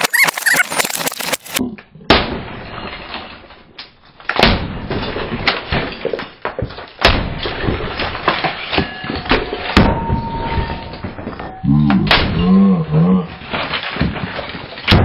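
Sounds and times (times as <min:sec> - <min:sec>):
plastic pieces clattering: 0:00.0 - 0:01.6, 0:13.3 - 0:14.9.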